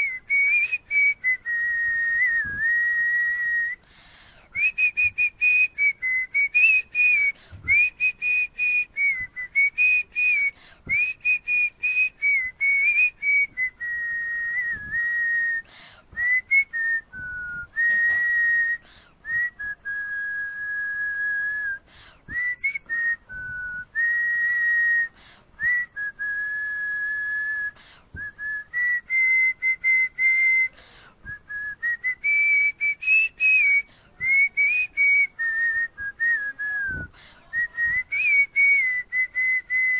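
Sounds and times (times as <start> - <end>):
person whistling a tune: 0.0 - 39.9
breaths: 3.8 - 4.6, 7.3 - 7.7, 10.5 - 10.9, 15.6 - 16.2, 18.8 - 19.4, 21.8 - 22.4, 25.1 - 25.6, 27.8 - 28.2, 30.7 - 31.3, 33.8 - 34.2, 36.9 - 37.5.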